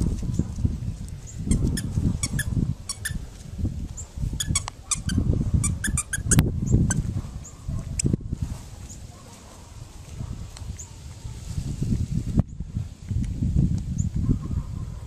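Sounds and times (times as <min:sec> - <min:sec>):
squeak toy squeaking: 0:01.5 - 0:03.2, 0:04.4 - 0:07.0.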